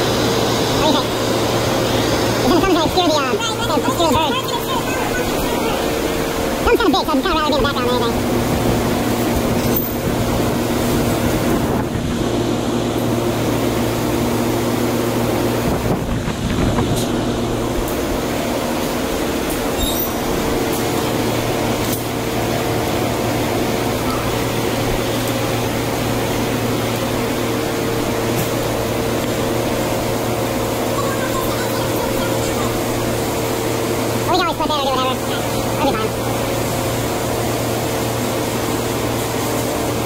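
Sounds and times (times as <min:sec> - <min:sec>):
blowers humming: 0:00.0 - 0:40.0
gas furnace roaring: 0:00.0 - 0:40.0.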